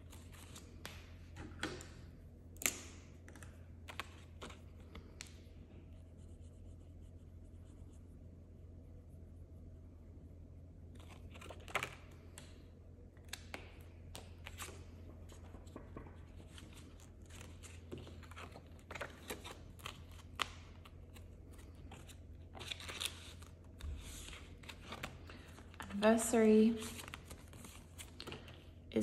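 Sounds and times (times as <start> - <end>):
banknotes and plastic crinkling: 13.4 - 29.0.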